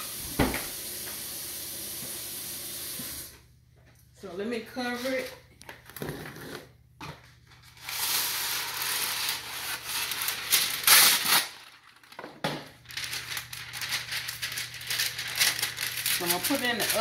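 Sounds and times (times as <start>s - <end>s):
paper crinkling: 7.5s - 17.0s
paper rustling: 7.6s - 17.0s
paper ripping: 7.7s - 12.2s, 12.8s - 17.0s.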